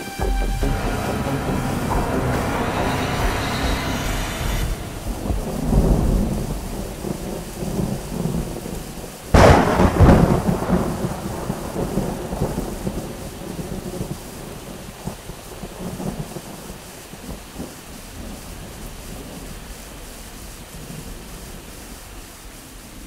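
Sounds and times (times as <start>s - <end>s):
steady rain: 0.0s - 23.0s
loud thunderclap: 0.6s - 16.6s
low rolling thunder: 0.6s - 19.8s.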